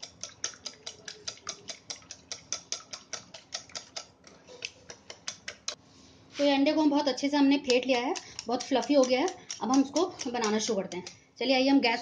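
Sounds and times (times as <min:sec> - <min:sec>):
whisk clicking against bowl: 0:00.0 - 0:05.8, 0:07.0 - 0:11.2.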